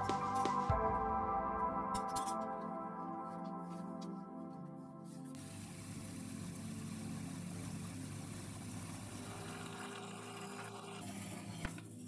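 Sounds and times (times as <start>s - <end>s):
band saw motor hum: 5.4s - 11.8s.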